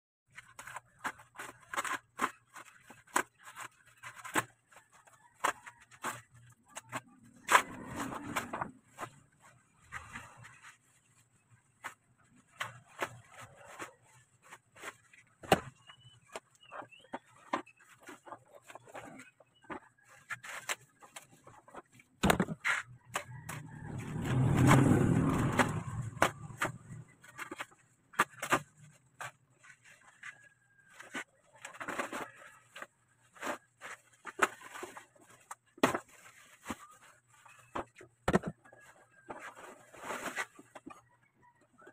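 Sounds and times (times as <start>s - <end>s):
bubble wrap crinkling and rustling: 0.3s - 23.8s.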